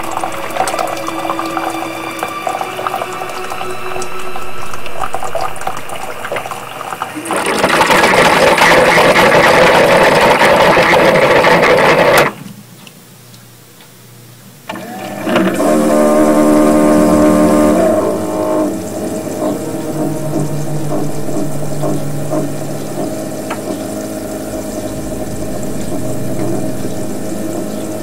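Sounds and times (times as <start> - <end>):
low droning honk: 0.0 - 7.3, 14.8 - 28.0
coffee maker pump rushing gurgling: 5.0 - 12.4, 14.7 - 21.1.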